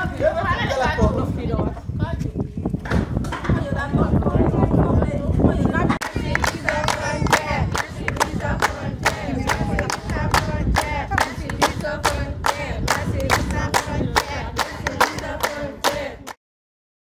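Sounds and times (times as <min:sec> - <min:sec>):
group of people singing: 0:05.6 - 0:16.4
rhythmic hand clapping: 0:06.0 - 0:16.4.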